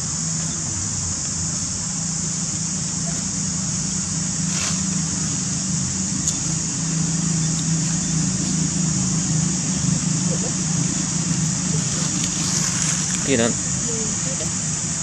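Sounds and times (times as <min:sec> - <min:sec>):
high-pitched hiss: 0:00.0 - 0:15.0
low engine hum: 0:00.0 - 0:15.0
soft rustle: 0:04.5 - 0:05.0.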